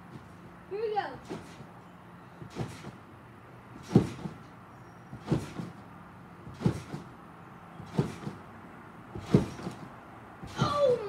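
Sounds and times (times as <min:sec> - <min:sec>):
thumps landing on trampoline: 0:01.2 - 0:01.7, 0:02.4 - 0:03.0, 0:03.8 - 0:04.5, 0:05.1 - 0:07.2, 0:07.8 - 0:08.5, 0:09.1 - 0:11.0.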